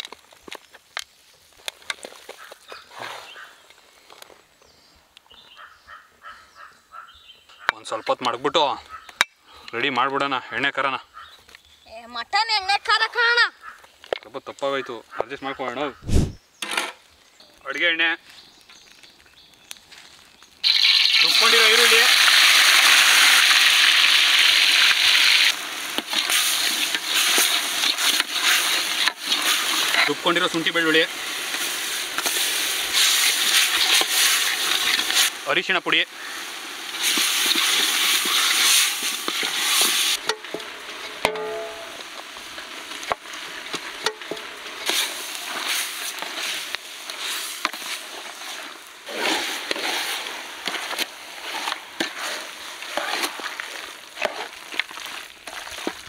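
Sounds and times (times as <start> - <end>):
onion paste sizzling in oil: 18.4 - 56.0
spoon knocking against pan: 41.2 - 41.9.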